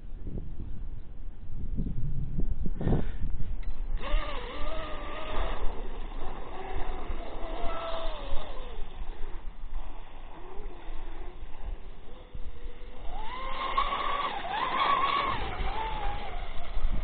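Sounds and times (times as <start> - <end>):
wind rumble on microphone: 0.0 - 17.0
electric motor whine: 3.6 - 17.0.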